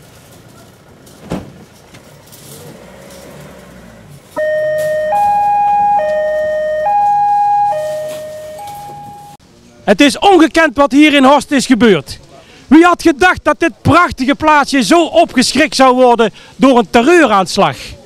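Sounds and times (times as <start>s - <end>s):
thump: 1.2s - 1.6s
two-tone police siren: 4.4s - 9.4s.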